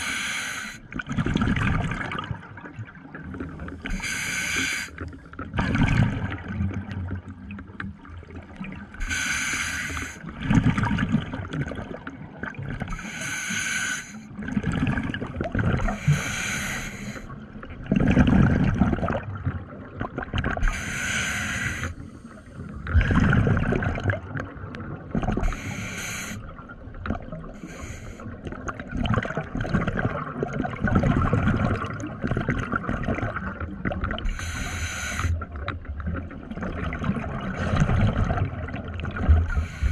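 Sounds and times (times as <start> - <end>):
hissing regulator inhale: 0.0 - 0.8, 3.9 - 5.0, 9.0 - 10.2, 12.9 - 14.2, 15.9 - 17.3, 20.6 - 22.6, 25.4 - 26.4, 27.6 - 28.3, 34.3 - 35.4, 39.5 - 39.9
gurgling exhaled bubbles: 0.9 - 9.1, 10.2 - 13.1, 14.3 - 21.0, 21.6 - 39.9.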